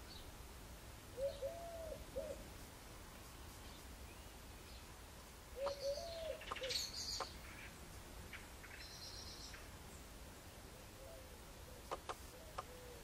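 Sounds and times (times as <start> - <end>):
high bird chirps: 5.6 - 7.6
sharp bird ticks: 5.6 - 7.7, 11.9 - 12.7.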